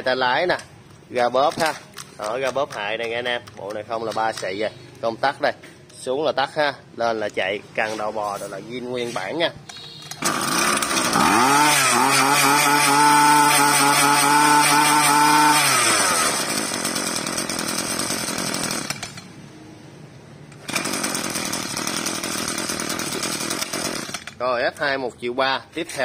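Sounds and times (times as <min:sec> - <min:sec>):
starter cord pull: 0:01.3 - 0:04.6, 0:09.7 - 0:19.3, 0:20.5 - 0:24.9
brush cutter engine running: 0:09.8 - 0:19.4, 0:20.5 - 0:24.8.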